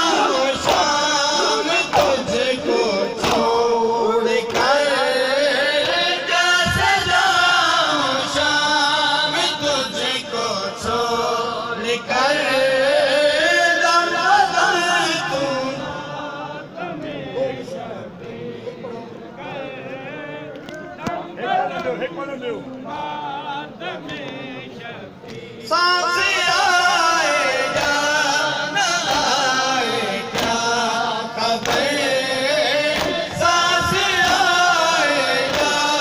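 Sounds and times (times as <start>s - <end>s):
men chanting together: 0.0s - 36.0s
sharp slaps: 0.6s - 1.0s, 1.8s - 2.3s, 3.2s - 3.6s, 30.3s - 30.6s, 31.6s - 32.0s, 32.9s - 33.4s, 35.4s - 35.8s.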